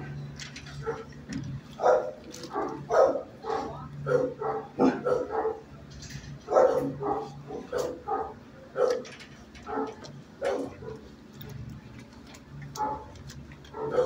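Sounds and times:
dogs barking: 0:00.7 - 0:05.8, 0:06.4 - 0:11.2, 0:12.6 - 0:14.0.

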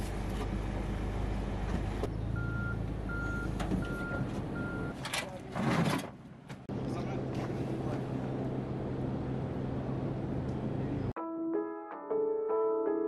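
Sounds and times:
forklift engine running: 0:00.0 - 0:05.0
forklift reversing alarm beeping: 0:02.4 - 0:05.0.

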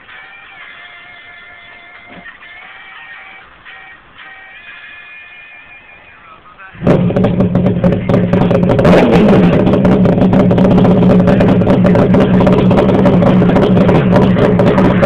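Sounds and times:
motorcycle engine running: 0:06.8 - 0:15.0.

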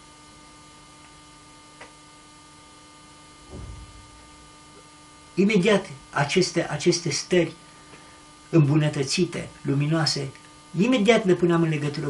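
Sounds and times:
electrical mains hum: 0:00.0 - 0:12.0
faint recording hiss: 0:00.0 - 0:12.0
small click: 0:01.8 - 0:02.0
short soft low sound: 0:03.4 - 0:04.9.

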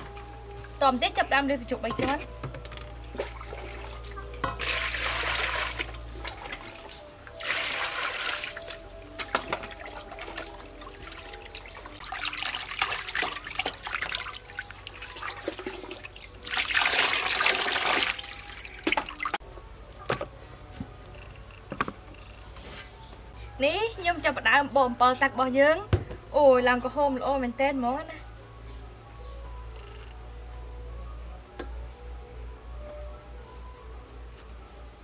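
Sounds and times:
water trickling and dripping: 0:00.0 - 0:19.4
water sloshing in steel bowl: 0:01.8 - 0:19.4.

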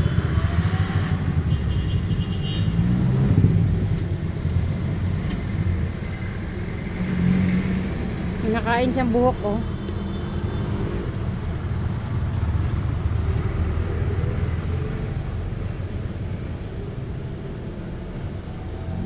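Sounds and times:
road traffic rumble: 0:00.0 - 0:19.0.

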